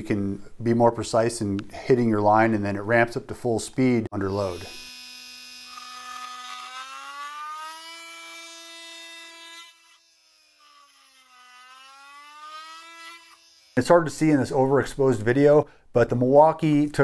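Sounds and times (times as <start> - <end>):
oscillating multi-tool cutting wood: 4.3 - 13.8.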